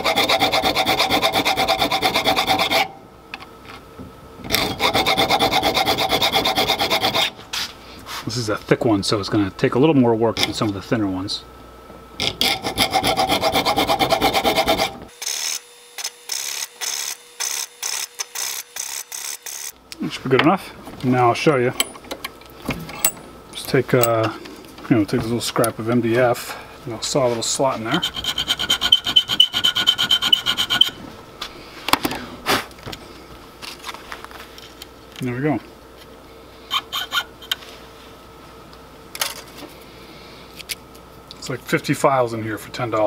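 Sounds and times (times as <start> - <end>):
thin saw blade sawing wood: 0.0 - 2.9, 4.6 - 7.4, 12.4 - 19.6, 27.8 - 31.0
file rasping on steel: 0.0 - 3.0, 4.5 - 7.4, 12.2 - 15.4, 27.9 - 31.0, 36.7 - 37.3.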